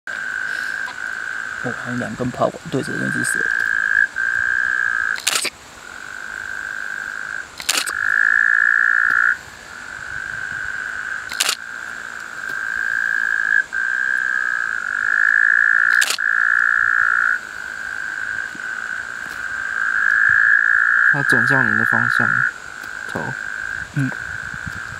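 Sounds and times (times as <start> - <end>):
frogs trilling: 0.1 - 24.9
camera shutter clicks: 5.2 - 5.5, 7.6 - 8.0, 11.3 - 11.6, 15.9 - 16.2.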